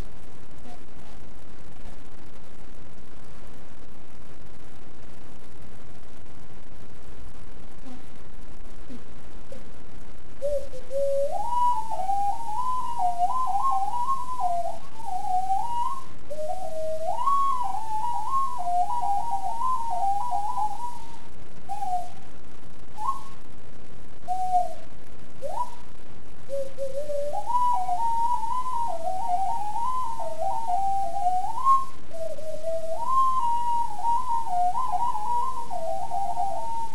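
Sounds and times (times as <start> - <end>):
steady hiss: 0.0 - 36.9
ocarina melody: 10.4 - 22.3, 22.9 - 23.4, 24.2 - 25.9, 26.5 - 36.9.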